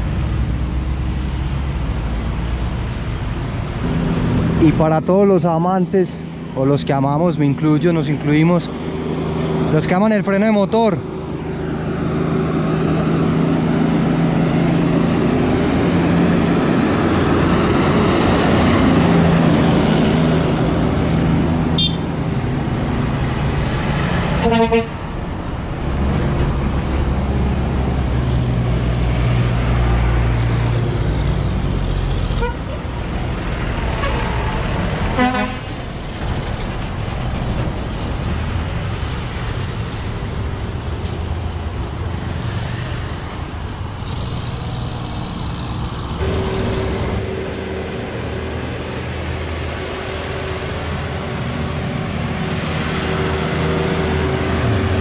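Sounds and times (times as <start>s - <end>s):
trucks passing: 0.0s - 55.0s
truck horn toots: 21.8s - 22.1s, 24.4s - 25.0s, 32.4s - 32.8s, 35.2s - 35.7s
engine brake drone: 44.1s - 49.0s.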